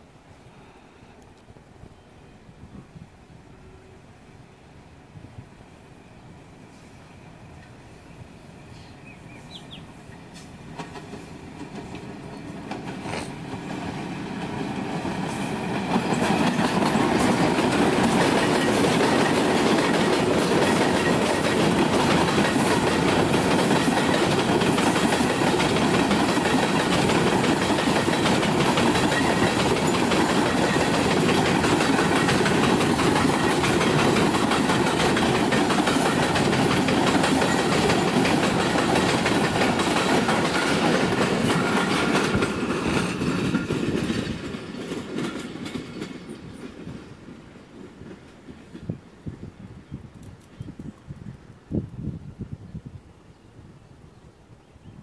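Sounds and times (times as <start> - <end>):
diesel locomotives: 0.0 - 51.8
train wheels rumbling and clattering: 9.3 - 51.0.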